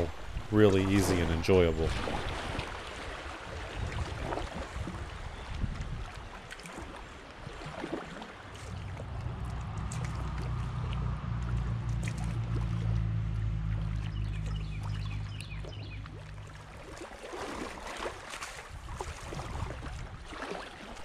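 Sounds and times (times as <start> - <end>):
low steady rumble: 0.0 - 2.3, 8.7 - 17.0
paddle splashing water: 0.0 - 21.0.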